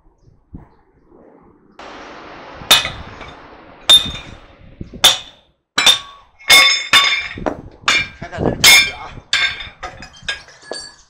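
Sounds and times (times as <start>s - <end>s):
steady hiss: 1.8s - 5.4s
hammer striking steel: 2.6s - 10.0s.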